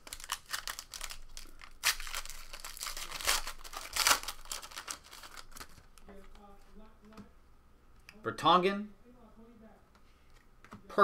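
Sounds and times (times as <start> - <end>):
foil wrapper tearing: 0.0 - 5.9
foil wrapper crinkling: 0.0 - 6.4.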